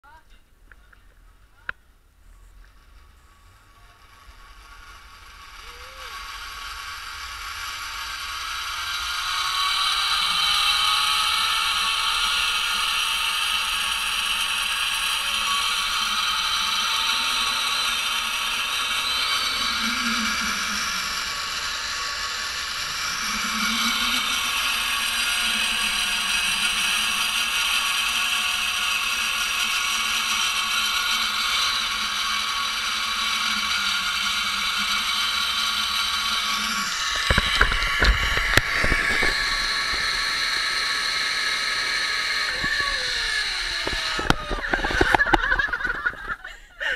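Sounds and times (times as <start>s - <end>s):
zip-line pulley whine on cable: 2.2s - 46.9s.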